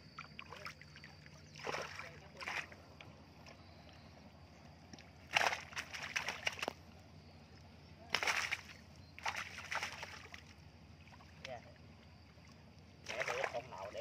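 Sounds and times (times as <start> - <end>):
fish thrashing and splashing in net: 1.6 - 2.7, 5.3 - 6.8, 8.1 - 10.5, 13.1 - 14.0.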